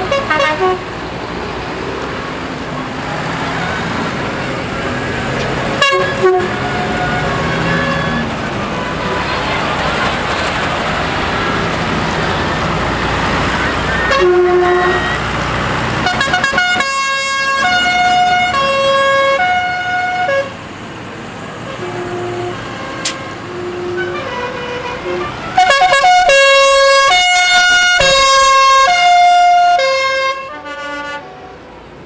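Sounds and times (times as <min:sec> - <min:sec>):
musical vehicle horn playing a tune: 0:00.0 - 0:00.8, 0:05.8 - 0:08.3, 0:13.9 - 0:15.3, 0:16.0 - 0:20.6, 0:21.7 - 0:31.6.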